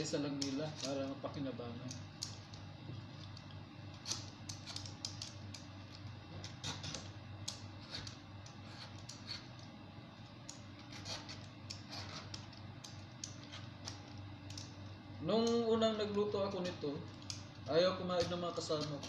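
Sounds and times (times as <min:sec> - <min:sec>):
steady low hum: 0:00.0 - 0:19.0
peeler scraping rind: 0:07.8 - 0:09.5, 0:10.8 - 0:12.5.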